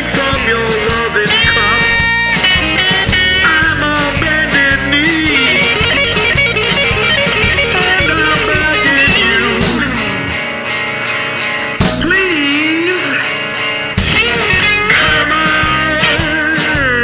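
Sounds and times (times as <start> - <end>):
drum beat: 0.0 - 10.1, 14.0 - 17.0
guitar: 0.0 - 17.0.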